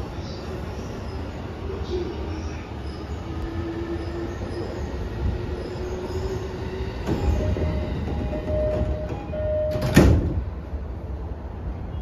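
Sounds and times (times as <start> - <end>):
train car hum: 0.0 - 12.0
two-pitch door warning chime: 7.2 - 10.2.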